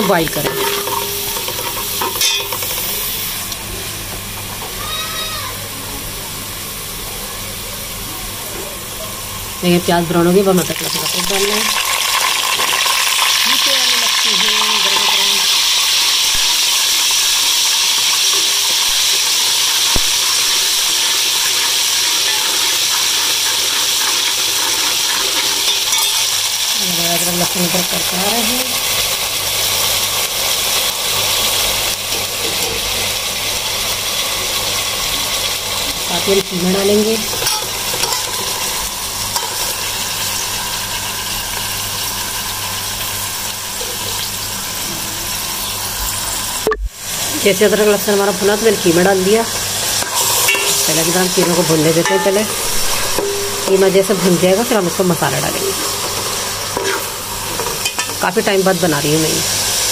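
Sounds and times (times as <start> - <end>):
steel ladle stirring: 0.0 - 3.0, 37.3 - 38.7, 49.9 - 54.8, 55.4 - 58.2
onions sizzling in hot oil: 0.0 - 59.9.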